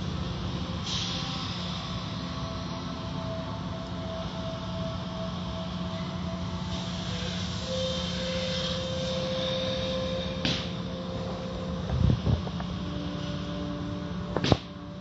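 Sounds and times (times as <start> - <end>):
car wash machinery humming: 0.0 - 15.0.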